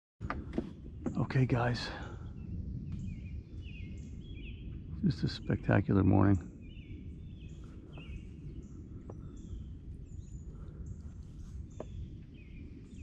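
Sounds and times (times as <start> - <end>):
birds chirping: 0.2 - 13.0
steady low rumble: 0.2 - 13.0.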